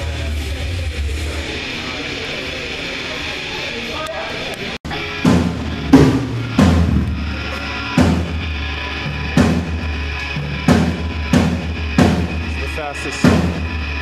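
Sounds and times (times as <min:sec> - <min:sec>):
low amplified guitar: 0:00.0 - 0:14.0
drum kit heavy hits: 0:04.9 - 0:14.0.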